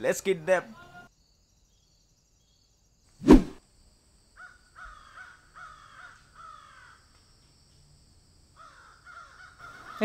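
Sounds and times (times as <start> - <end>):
crow cawing: 4.4 - 7.1, 8.6 - 10.0.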